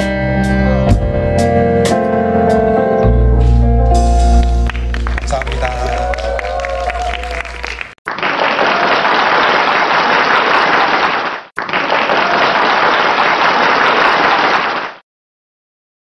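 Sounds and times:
crowd applause: 4.4s - 15.0s.

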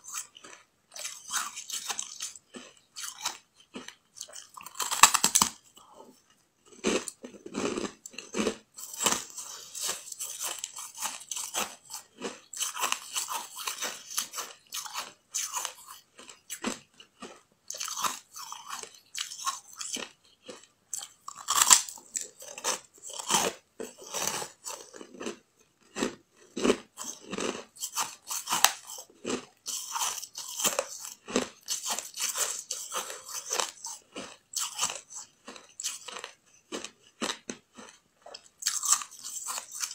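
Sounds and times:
crunching bite of packed ice: 0.0s - 5.8s
chewing ice: 0.0s - 39.9s.

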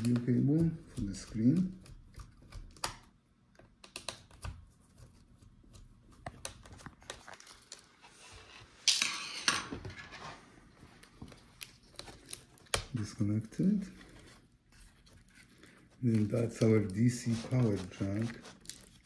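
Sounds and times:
rustling scrape: 7.9s - 10.8s, 16.8s - 19.0s.

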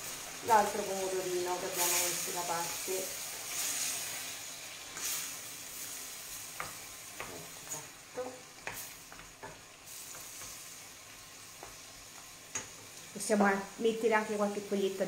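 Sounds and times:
food sizzling in pan: 0.0s - 15.0s.

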